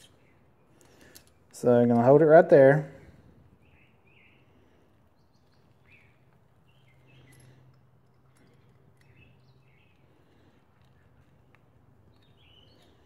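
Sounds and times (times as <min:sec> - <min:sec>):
faint bird chirps: 0:03.6 - 0:07.7
small faint clicks: 0:05.4 - 0:13.0.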